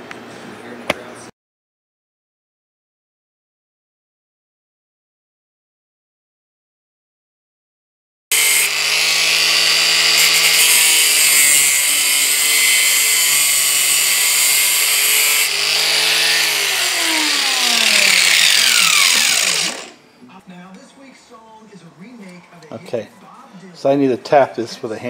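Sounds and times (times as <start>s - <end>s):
angle grinder grinding metal: 8.3s - 20.0s.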